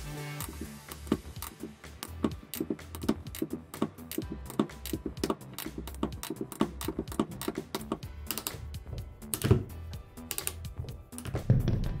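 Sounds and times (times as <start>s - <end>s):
background music: 0.0s - 12.0s
ratchet cable cutter clicking: 0.3s - 9.5s.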